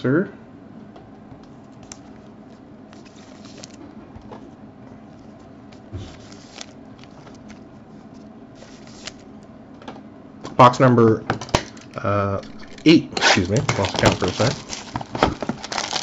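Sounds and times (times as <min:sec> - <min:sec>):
plastic wrapping crinkling: 0:12.5 - 0:16.0.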